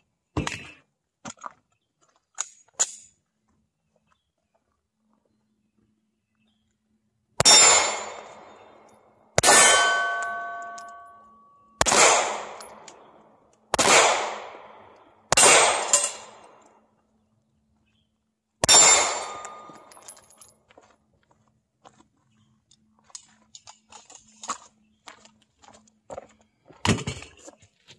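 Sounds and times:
steel targets pinging: 7.4 - 8.7, 9.4 - 13.0, 15.3 - 16.5, 18.6 - 20.2
pistol shots echoing: 7.4 - 11.2, 11.8 - 16.6, 18.6 - 20.0.

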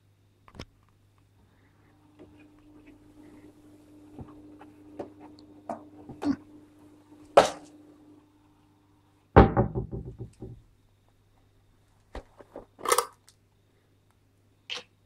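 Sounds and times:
steady low hum: 1.2 - 10.7.

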